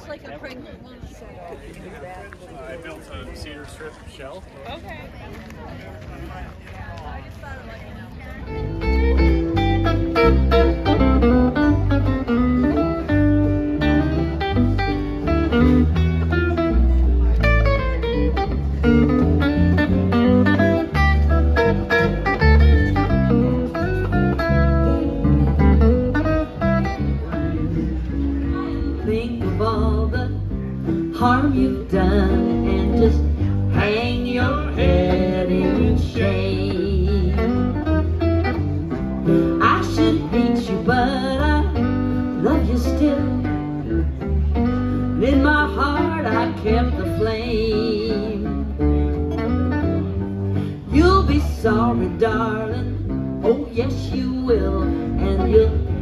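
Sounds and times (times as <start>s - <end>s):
electric bass line: 8.5s - 56.0s
acoustic guitar strumming: 8.6s - 56.0s
woman singing: 28.7s - 37.7s, 39.6s - 43.7s, 45.2s - 48.8s, 50.8s - 56.0s.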